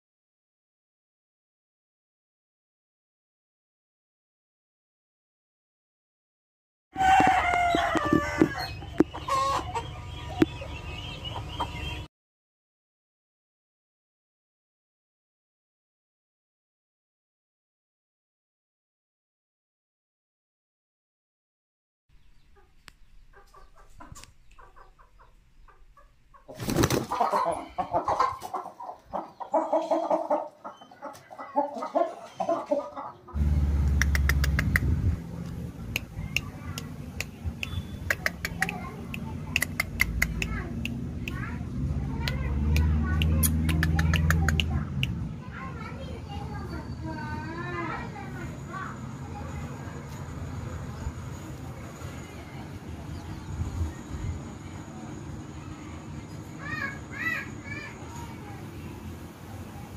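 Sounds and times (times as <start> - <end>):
rooster crowing: 7.0 - 9.7
clucking calls: 7.2 - 12.0, 22.4 - 34.9, 36.0 - 41.0, 43.2 - 44.8
loud low rumble: 33.4 - 36.2
sharp clicks: 33.8 - 41.5.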